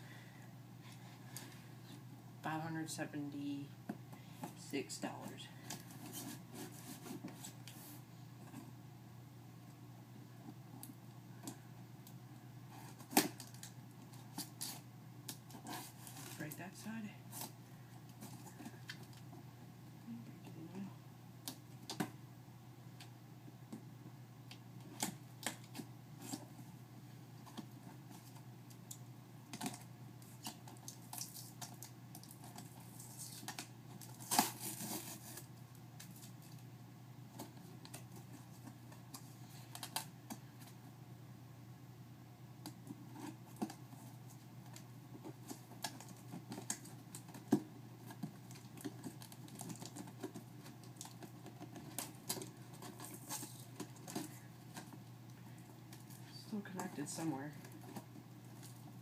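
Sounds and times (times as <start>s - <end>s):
low steady hum: 0.0s - 59.0s
packing rustling and tearing: 29.6s - 36.6s, 43.1s - 55.0s.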